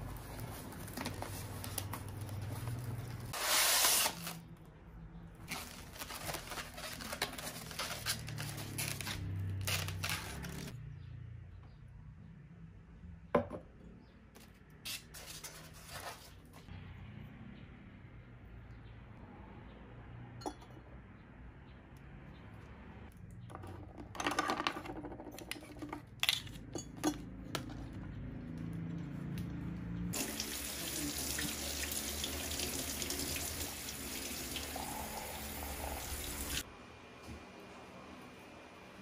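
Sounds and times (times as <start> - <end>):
plastic packaging rustling: 5.4 - 10.7.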